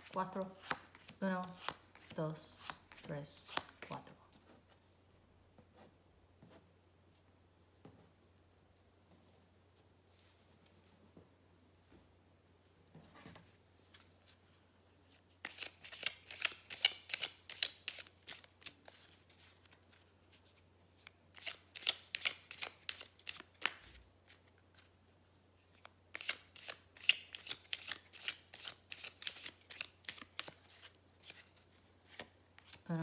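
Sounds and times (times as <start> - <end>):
deck of cards shuffling: 0.0 - 4.6, 15.1 - 25.0, 25.6 - 33.0.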